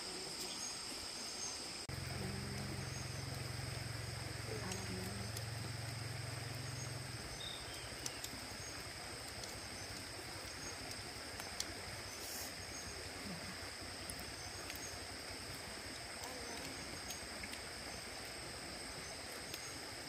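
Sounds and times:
insects trilling: 0.0 - 20.0
low hum: 1.8 - 20.0
faint ticks: 2.0 - 12.6, 14.0 - 18.4, 19.3 - 19.8.

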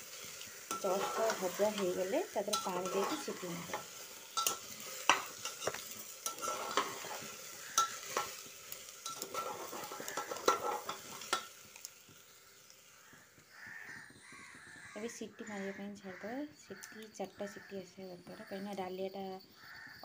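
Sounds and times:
light sizzle: 0.0 - 19.8
metal spatula scraping a pot: 0.1 - 11.6.

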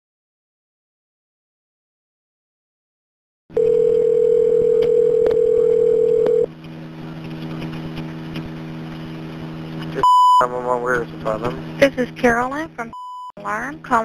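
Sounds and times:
phone line hum and hiss: 3.5 - 14.0
telephone dial tone: 3.6 - 6.5.

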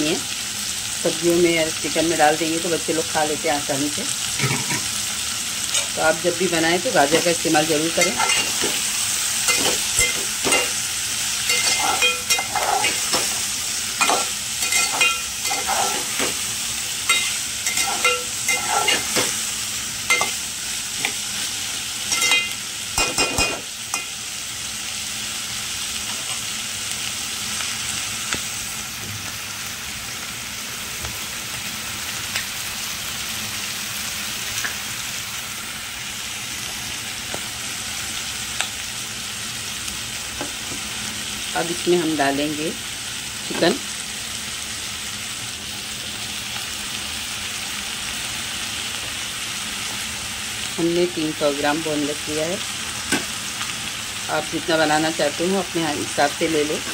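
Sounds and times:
vegetables sizzling in oil: 0.0 - 56.9
spatula scraping a pan: 7.9 - 10.8, 11.4 - 16.5, 17.1 - 19.4.

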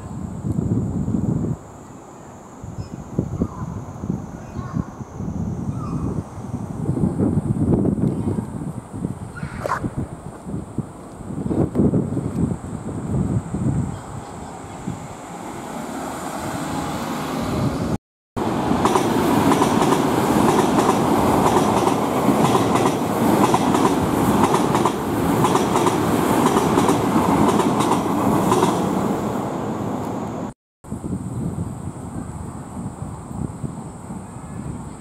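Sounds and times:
electric train passing: 12.5 - 30.5.

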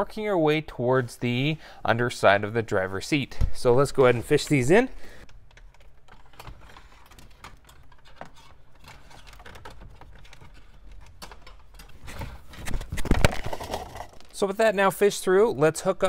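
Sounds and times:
cables rustling and clicking: 4.0 - 14.6.

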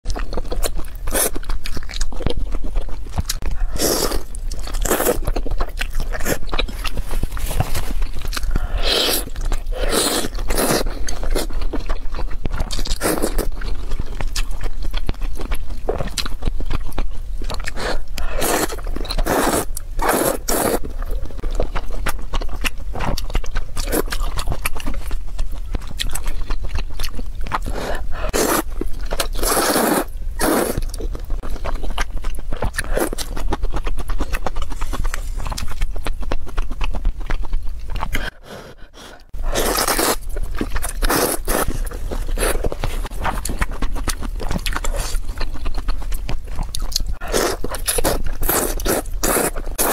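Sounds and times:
wet chewing: 0.0 - 49.9
noodles slurped: 17.7 - 20.9, 27.5 - 31.0, 47.0 - 49.9.

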